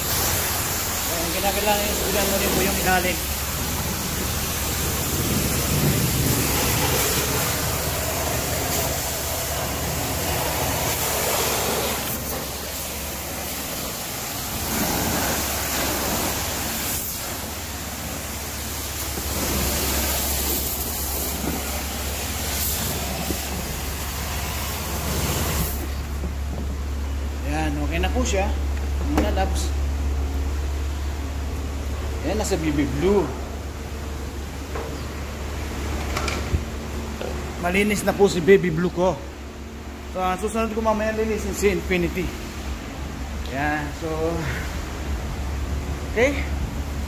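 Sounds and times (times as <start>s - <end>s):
pressure washer spray hissing: 0.0s - 26.2s
low steady hum: 0.0s - 47.0s.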